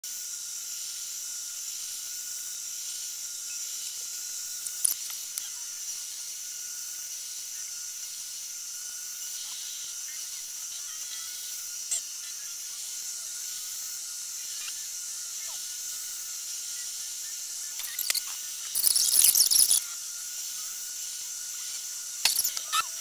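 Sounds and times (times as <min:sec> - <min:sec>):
faint steady whine: 0:00.1 - 0:23.0
high-pitched hiss: 0:00.1 - 0:23.0
sharp click: 0:22.2 - 0:22.7.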